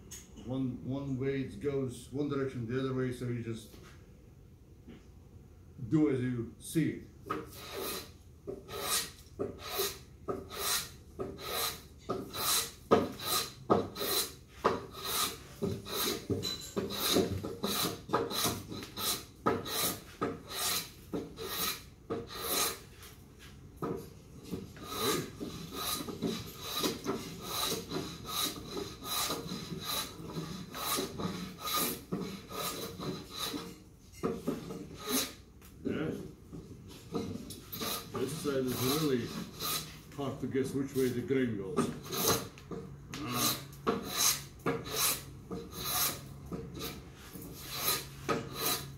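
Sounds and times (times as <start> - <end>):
hand plane rasping across wood: 7.3 - 22.9, 23.8 - 33.8, 34.4 - 35.4, 36.6 - 40.0, 41.8 - 42.5, 43.2 - 48.9.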